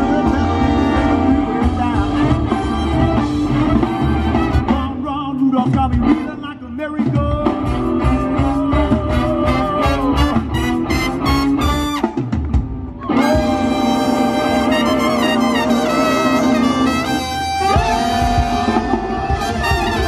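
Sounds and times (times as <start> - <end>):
man singing: 0.0 - 11.8
swing band playing: 0.0 - 20.0.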